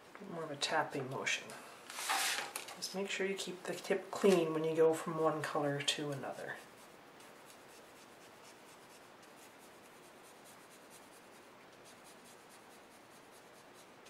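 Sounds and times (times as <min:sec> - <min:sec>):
pen scratching on paper: 0:06.0 - 0:14.0.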